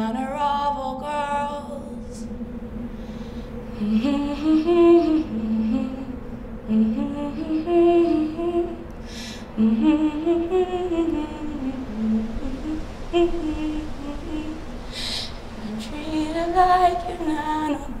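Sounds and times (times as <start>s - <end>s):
woman humming a melody: 3.7s - 14.6s.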